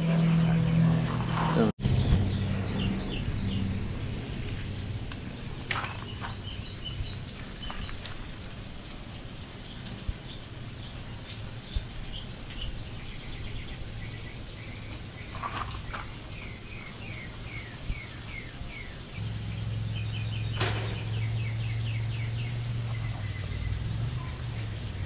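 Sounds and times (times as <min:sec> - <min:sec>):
low hum: 0:00.0 - 0:09.1
songbird chirping: 0:01.9 - 0:08.4, 0:09.7 - 0:24.8.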